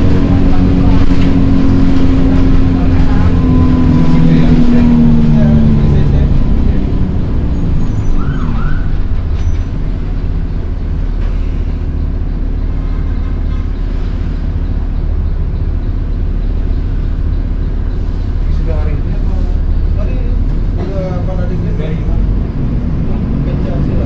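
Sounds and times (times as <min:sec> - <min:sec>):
bus engine and road rumble: 0:00.0 - 0:24.0.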